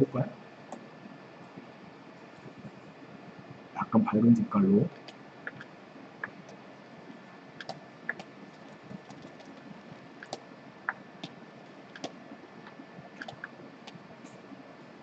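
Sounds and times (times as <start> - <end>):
low steady hiss: 0.0 - 15.0
computer mouse and keyboard clicks: 5.0 - 6.6, 7.6 - 14.4.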